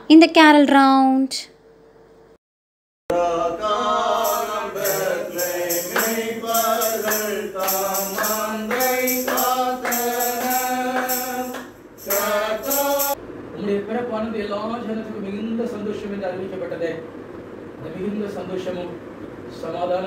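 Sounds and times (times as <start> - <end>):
group singing a carol: 3.1 - 13.2
tambourine: 4.2 - 13.2.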